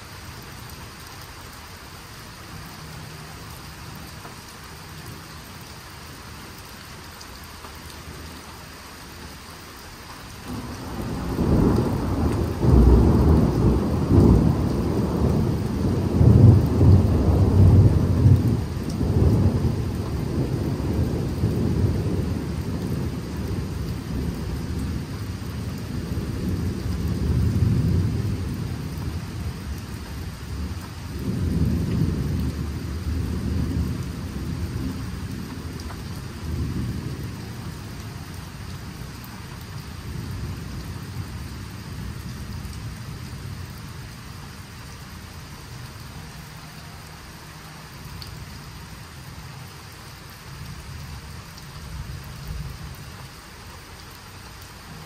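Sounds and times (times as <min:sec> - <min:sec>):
rain falling steadily: 0:00.0 - 0:55.0
deep thunder roll: 0:10.5 - 0:24.6.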